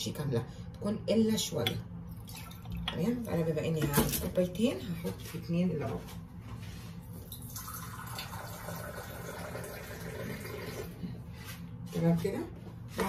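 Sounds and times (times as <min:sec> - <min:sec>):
water pouring into a cup: 0:02.1 - 0:02.8, 0:07.2 - 0:11.0.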